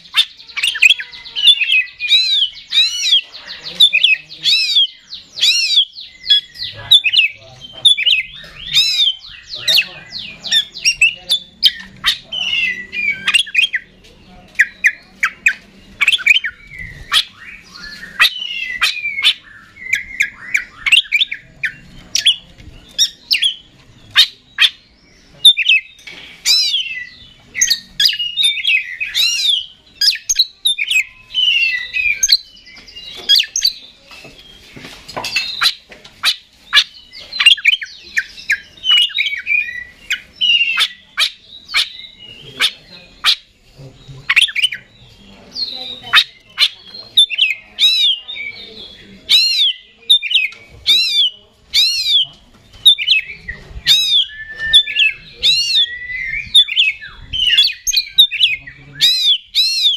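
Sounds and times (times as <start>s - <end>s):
bird singing: 0.0s - 59.9s.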